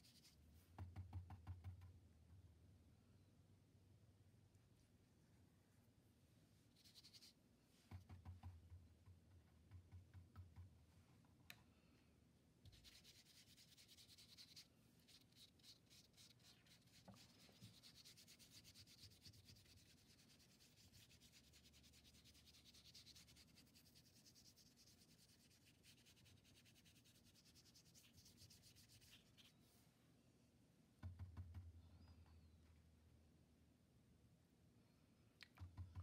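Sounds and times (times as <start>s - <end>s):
paintbrush scrubbing on paper: 0.0s - 0.4s, 6.7s - 7.4s, 12.7s - 29.6s.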